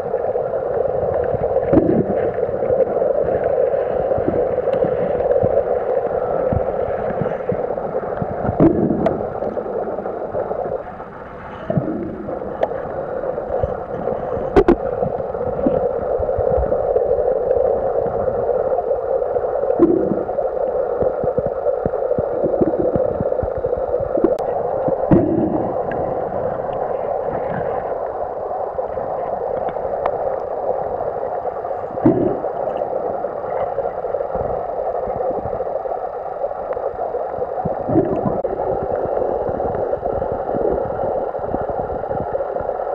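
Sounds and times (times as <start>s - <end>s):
low underwater gurgles: 0.0s - 42.9s
muffled underwater drone: 0.0s - 42.9s
underwater thumps: 25.0s - 26.0s.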